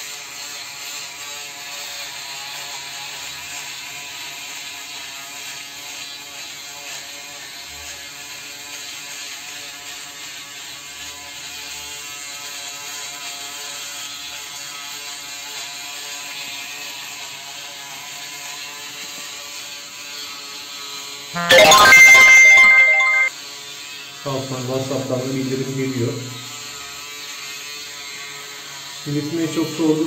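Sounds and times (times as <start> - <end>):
electric shaver buzzing: 0.0 - 4.4, 5.8 - 21.0, 25.5 - 29.8.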